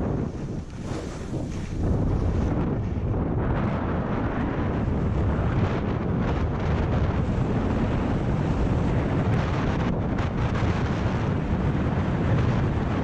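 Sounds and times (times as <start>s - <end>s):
skis sliding on packed snow: 0.0s - 5.5s
wind buffeting microphone: 0.0s - 13.0s.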